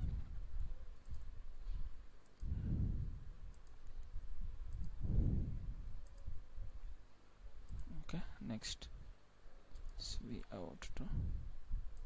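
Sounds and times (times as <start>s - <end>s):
computer mouse clicks: 1.0s - 1.3s, 2.2s - 2.6s, 3.4s - 5.0s, 6.0s - 6.3s, 7.6s - 8.1s, 9.7s - 10.5s.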